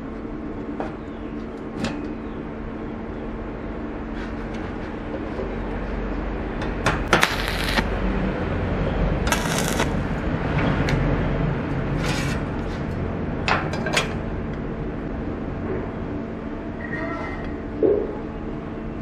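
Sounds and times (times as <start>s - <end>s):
steady low rumble: 5.4s - 13.5s
short scraping rasps: 9.3s - 9.9s.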